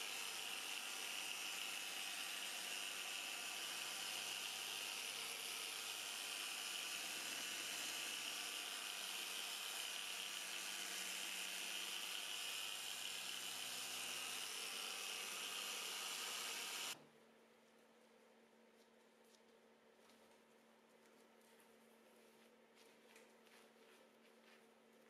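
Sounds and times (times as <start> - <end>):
orbital sander whirring with high whine: 0.0 - 17.0.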